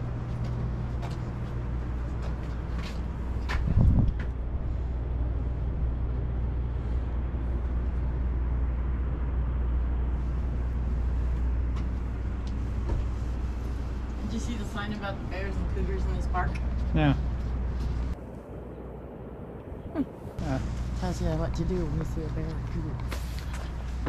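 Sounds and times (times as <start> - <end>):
wind buffeting microphone: 3.1 - 7.9.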